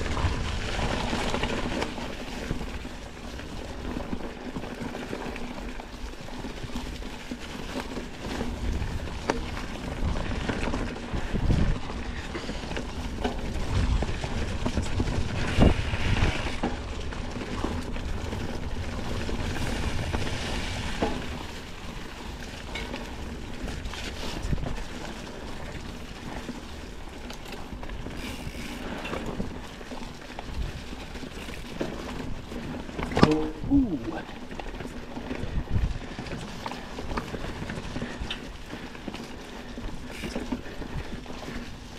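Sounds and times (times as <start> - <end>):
mountain bike tyres rolling: 0.0 - 41.9
bike knocks and rattles: 27.4 - 33.6.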